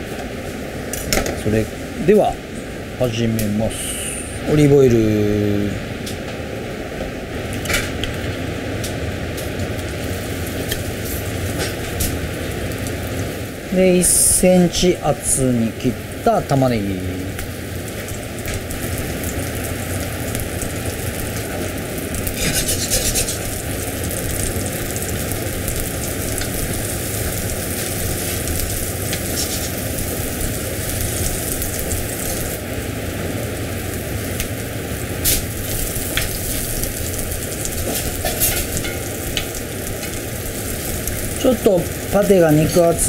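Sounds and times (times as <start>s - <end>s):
meat sizzling in frying pan: 7.6s - 43.0s
fat spitting crackles: 22.4s - 23.5s.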